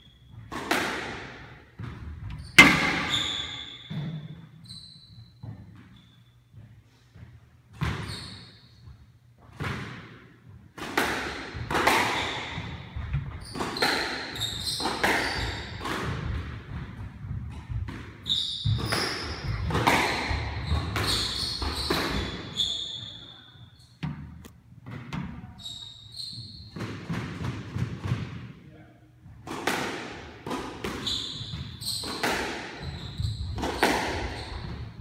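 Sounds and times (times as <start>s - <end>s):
squash ball cracking off walls: 0.5s - 4.1s
shoes squeaking on hardwood floor: 2.3s - 6.8s, 25.4s - 26.8s, 32.8s - 35.0s.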